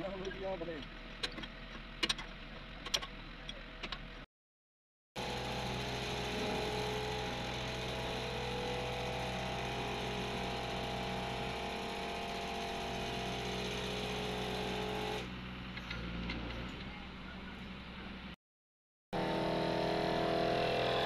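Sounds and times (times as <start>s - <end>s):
heavy diesel engine running: 5.2s - 18.3s.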